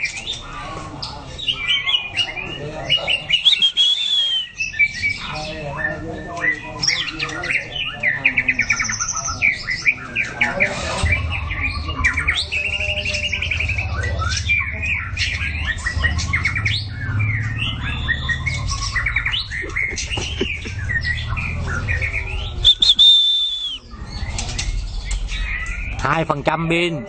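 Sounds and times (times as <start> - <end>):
bird singing whistled phrases: 3.2 - 5.0, 21.9 - 24.0.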